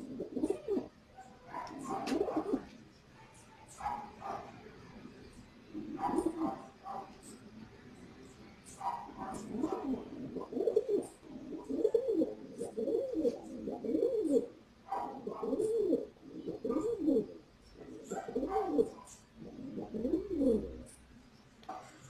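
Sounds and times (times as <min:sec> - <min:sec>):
pigeon cooing: 0:00.0 - 0:00.9, 0:01.5 - 0:02.7, 0:05.7 - 0:07.4, 0:08.7 - 0:21.0.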